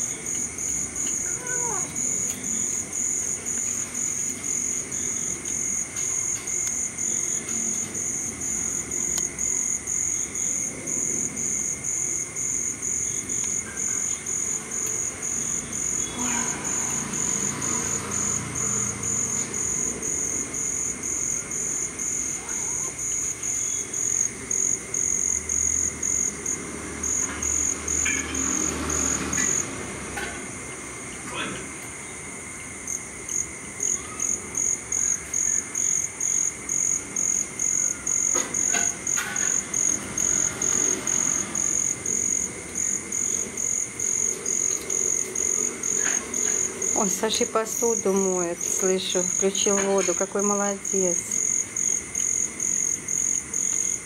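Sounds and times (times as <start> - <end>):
cricket chirping: 0.0 - 54.0.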